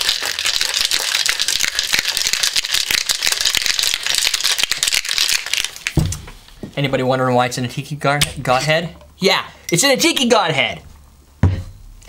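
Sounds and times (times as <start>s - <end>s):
ice rattling in cocktail shaker: 0.0s - 6.0s.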